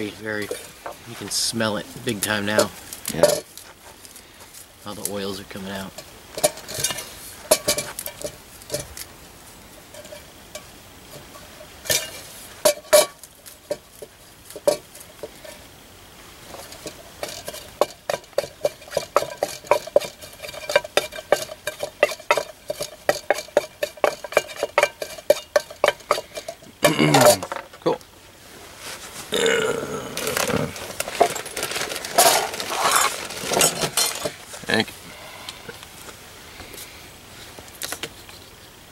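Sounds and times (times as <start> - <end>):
wooden stick grinding in metal cup: 16.5 - 27.5, 29.9 - 34.4.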